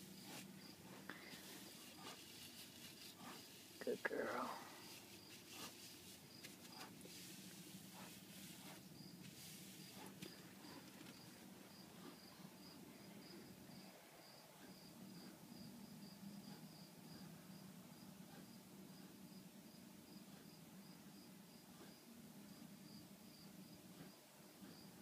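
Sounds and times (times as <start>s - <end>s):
cricket chirping: 0.0s - 3.6s, 8.0s - 25.0s
soft rustles: 0.0s - 12.3s.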